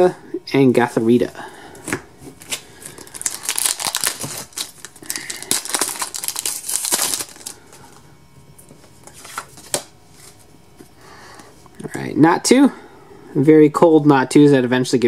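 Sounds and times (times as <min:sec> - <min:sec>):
foil wrapper crinkling and tearing: 0:02.4 - 0:08.0.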